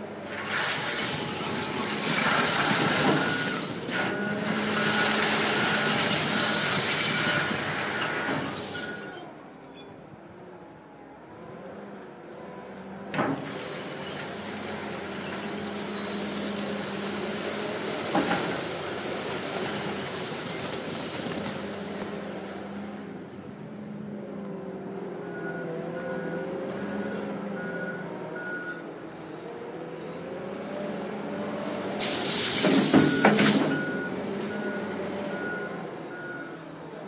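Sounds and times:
diesel engine revving: 0.0s - 8.8s, 12.4s - 37.0s
crushed glass pouring out: 0.2s - 9.8s, 13.3s - 22.6s, 31.8s - 34.7s
reversing alarm beeping: 32.2s - 36.6s.

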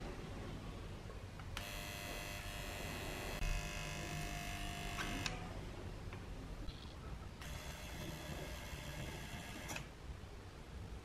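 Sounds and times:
soldering gun buzzing: 1.6s - 5.5s, 7.4s - 9.9s.

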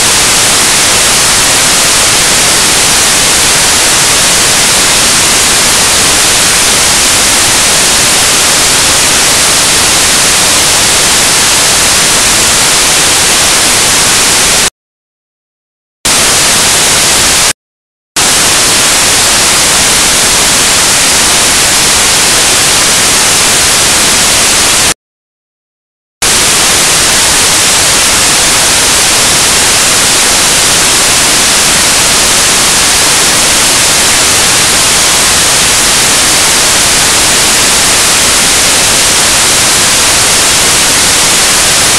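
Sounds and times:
static hiss: 0.0s - 14.7s, 16.1s - 17.5s, 18.2s - 25.0s, 26.2s - 41.9s.

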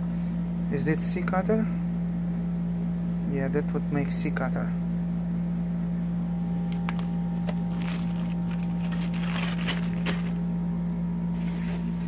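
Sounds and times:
steady low hum: 0.0s - 12.0s
paper rustling: 6.9s - 10.4s.

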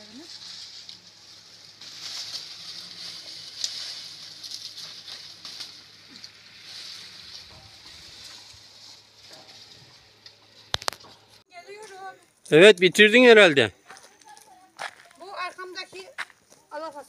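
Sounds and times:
dry plants rustling and snapping: 0.0s - 12.0s.

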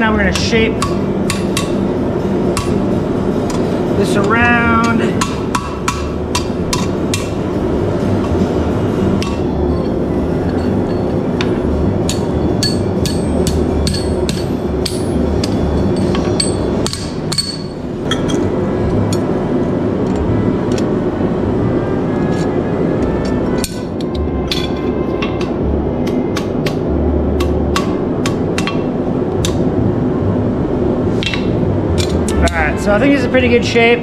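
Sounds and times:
steady background hum: 0.0s - 34.0s
hammer striking metal on anvil: 0.2s - 1.9s, 2.5s - 2.8s, 4.7s - 7.4s, 9.2s - 18.5s, 27.4s - 29.6s, 31.2s - 32.6s.

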